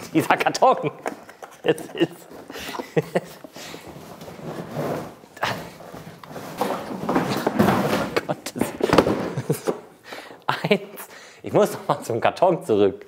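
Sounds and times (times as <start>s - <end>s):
cardboard rustling and scraping: 1.3s - 9.5s
hard plastic bumps: 5.8s - 9.9s.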